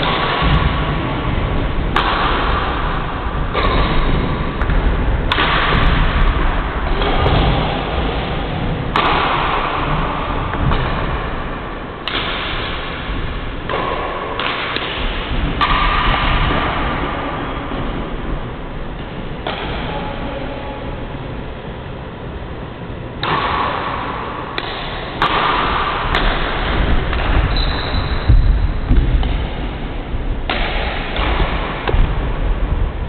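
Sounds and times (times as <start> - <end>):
loud steady hall noise: 0.0 - 33.0
racket striking shuttlecock: 1.9 - 11.3, 12.0 - 17.1, 19.0 - 20.2, 23.2 - 27.6, 30.4 - 32.2.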